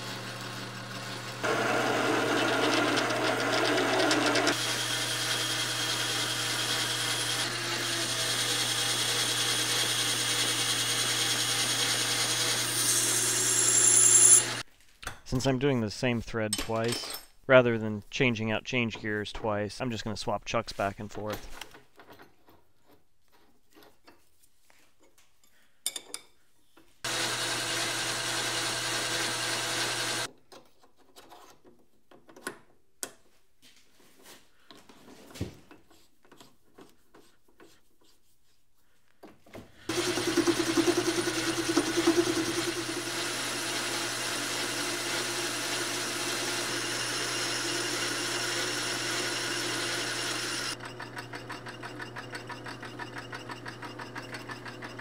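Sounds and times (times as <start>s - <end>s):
metal lathe running: 0.0s - 14.6s, 27.1s - 30.3s, 39.9s - 55.0s.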